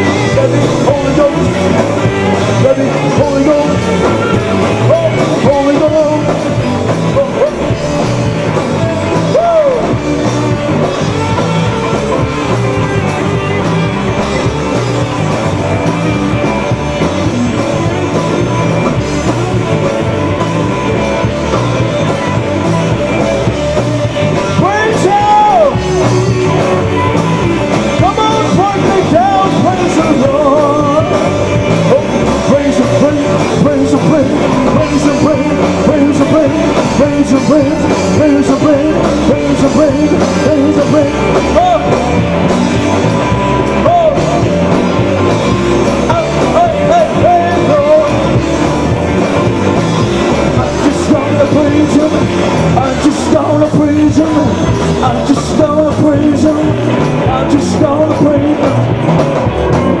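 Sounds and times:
man singing into microphone: 0:00.0 - 0:12.2, 0:23.4 - 0:27.1, 0:27.8 - 0:42.5, 0:43.3 - 0:44.7, 0:46.0 - 0:48.4, 0:50.4 - 0:59.0
rock band playing: 0:00.0 - 1:00.0.

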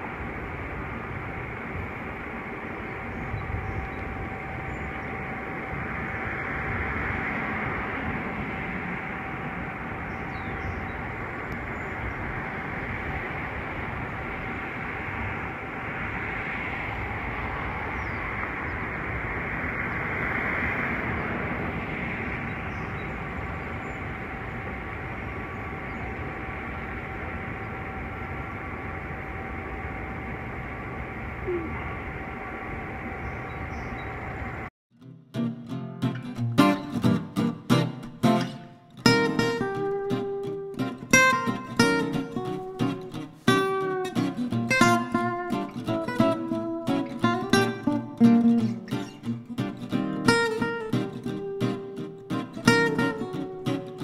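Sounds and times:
faint constant hum: 0:00.0 - 0:34.7.

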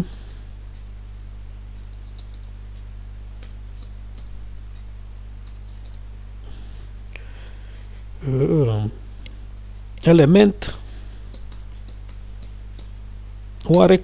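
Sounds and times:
low electrical hum: 0:00.0 - 0:14.0
keyboard keystrokes: 0:01.8 - 0:02.5.

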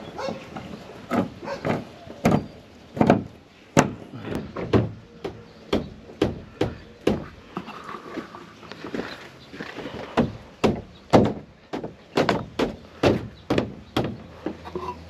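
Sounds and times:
knocks on hollow plastic panels: 0:01.1 - 0:07.3, 0:10.2 - 0:14.6.

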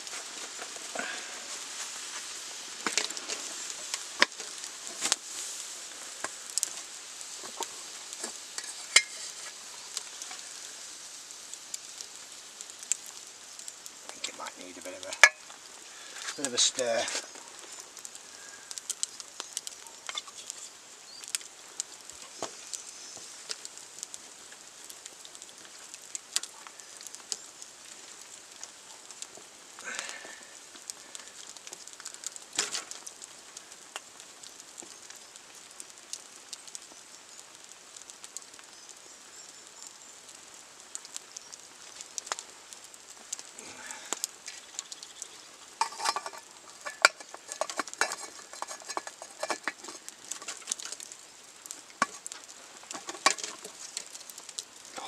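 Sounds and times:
wood fire crackling and popping: 0:00.0 - 0:55.0
wooden spoon scraping and knocking: 0:08.2 - 0:09.6, 0:45.8 - 0:50.9.

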